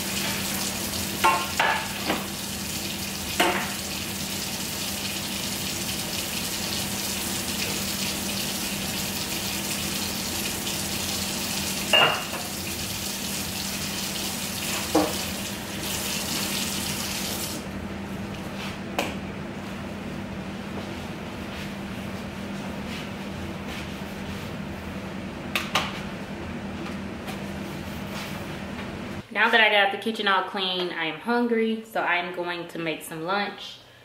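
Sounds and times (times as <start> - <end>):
dishes clinking: 11.9 - 12.5
tap running into sink: 14.7 - 15.3.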